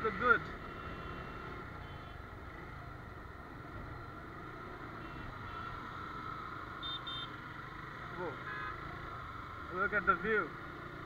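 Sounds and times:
motorcycle engine: 0.0s - 11.0s.

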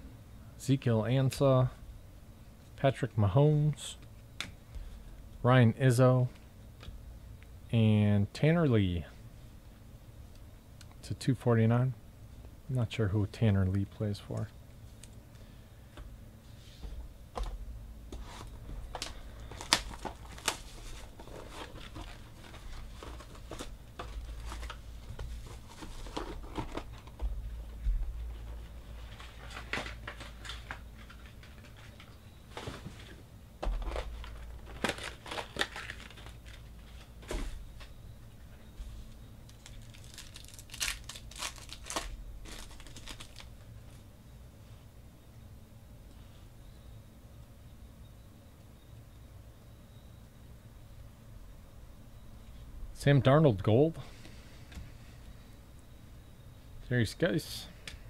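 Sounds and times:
foil wrapper tearing and crinkling: 19.4s - 23.6s, 34.0s - 36.7s, 39.5s - 43.6s.

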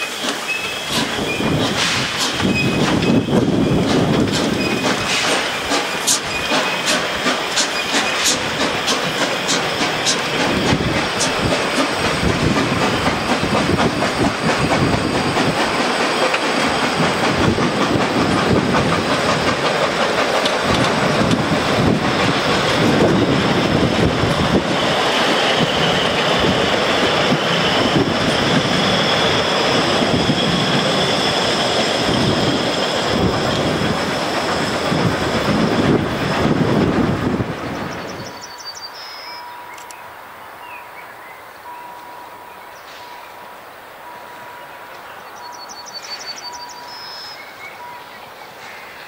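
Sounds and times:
train wheels clattering over rail joints: 0.0s - 38.3s.

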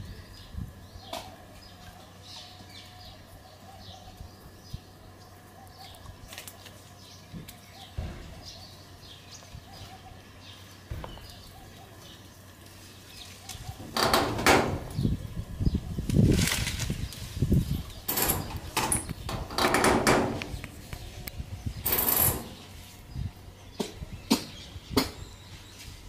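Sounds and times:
loud rustling and knocking: 13.8s - 15.0s, 18.1s - 20.8s.

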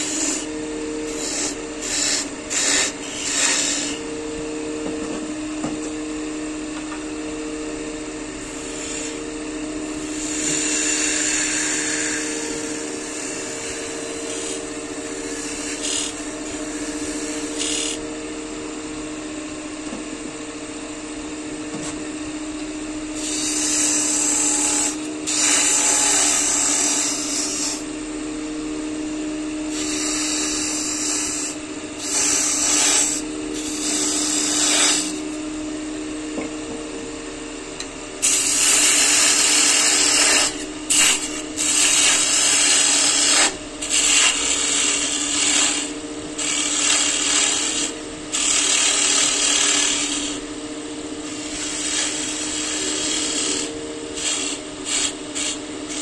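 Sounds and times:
turning tool cutting wood: 0.0s - 4.0s, 8.4s - 9.2s, 9.9s - 18.0s, 23.2s - 27.8s, 29.7s - 35.2s, 38.2s - 50.4s, 51.2s - 56.0s
wood lathe humming: 0.0s - 5.0s, 5.6s - 19.2s, 23.1s - 35.6s, 37.9s - 56.0s.

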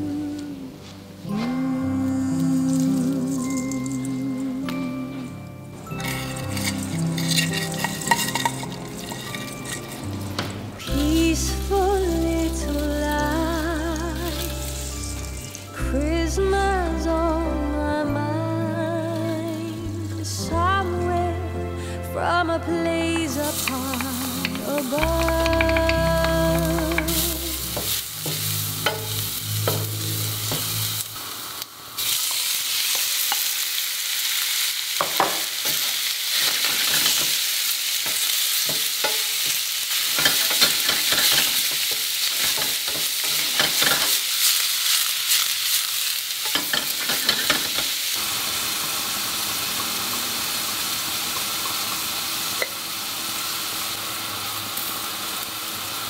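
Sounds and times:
food sizzling in hot oil: 2.2s - 4.5s, 5.8s - 15.8s, 23.3s - 56.0s
wooden spoon scraping a pan: 6.0s - 10.0s.

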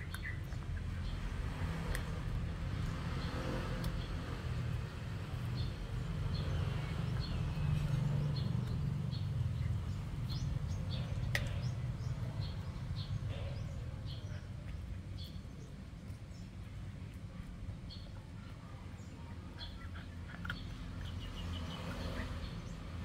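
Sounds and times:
small birds chirping: 0.0s - 23.0s
puppy chewing bone: 7.0s - 12.9s.

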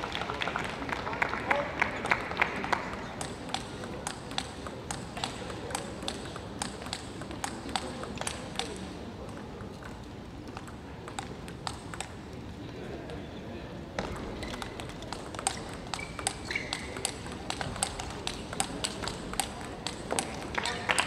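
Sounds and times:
applause: 0.0s - 3.2s, 20.5s - 21.0s
table tennis ball bouncing: 2.1s - 12.2s, 14.0s - 21.0s.

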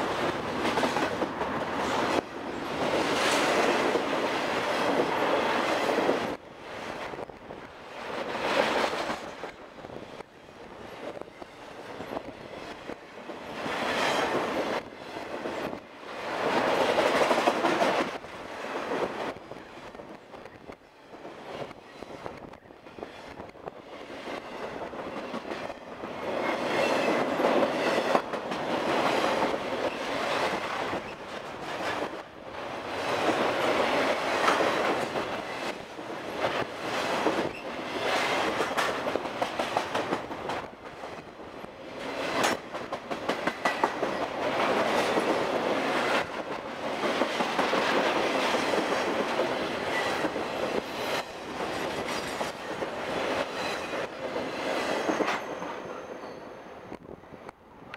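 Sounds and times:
freight train rumbling: 0.0s - 57.9s
wheels clicking over rail joints: 33.0s - 41.2s, 42.0s - 55.5s.

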